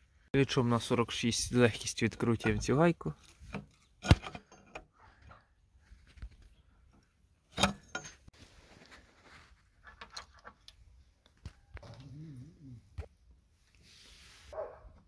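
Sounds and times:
steel parts clinking: 7.5s - 8.3s.

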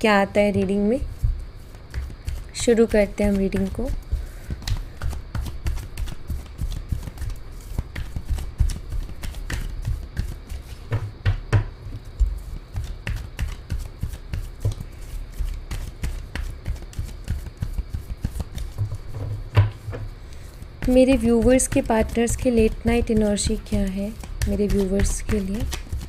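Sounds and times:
cards being shuffled: 1.1s - 11.0s, 11.9s - 26.0s
dull knocks of deck: 10.8s - 11.8s, 18.7s - 20.1s.

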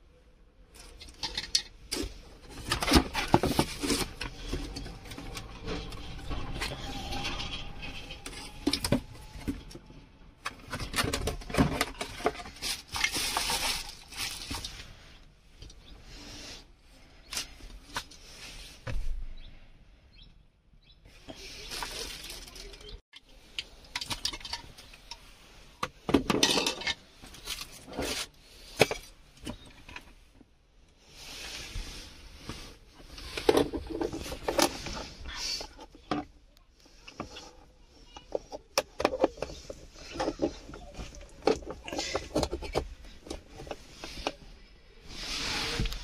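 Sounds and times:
plastic wrapping crinkling: 11.8s - 14.8s, 21.6s - 23.0s.

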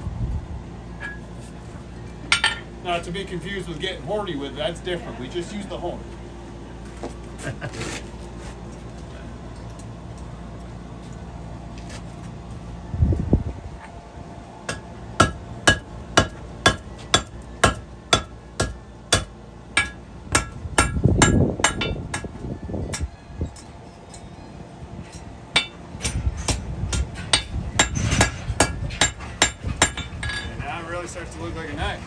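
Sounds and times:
hammer striking steel on anvil: 14.7s - 22.3s, 25.5s - 30.5s.

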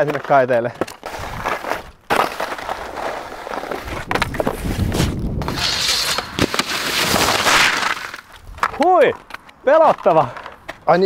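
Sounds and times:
skis sliding on snow: 1.0s - 8.2s
skis scraping along metal rail: 1.0s - 8.3s.

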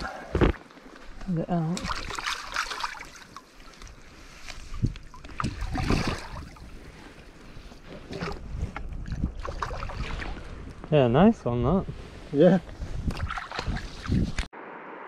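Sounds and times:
river water sloshing and splashing: 0.0s - 10.7s, 13.1s - 14.4s
wind rumbling on microphone: 4.2s - 14.9s.

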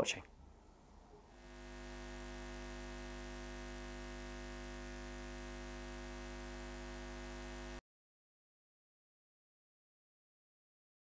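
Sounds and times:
steady electronic hum: 0.7s - 7.8s.

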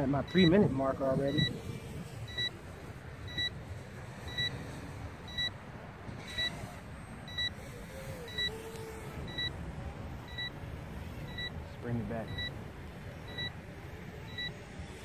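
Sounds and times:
wind rumble on microphone: 0.0s - 15.0s
short high beeps: 2.3s - 2.5s, 3.3s - 3.6s, 5.3s - 5.6s, 9.3s - 9.5s, 11.3s - 11.6s, 12.2s - 12.5s.

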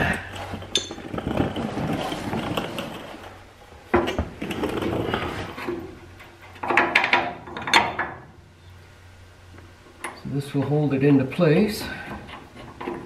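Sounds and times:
clothing rustling: 0.3s - 3.4s.

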